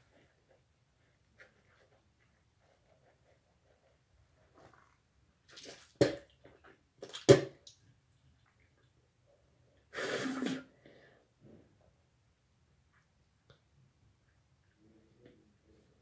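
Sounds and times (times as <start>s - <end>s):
water splashing in sink: 5.5s - 6.4s, 7.0s - 7.8s.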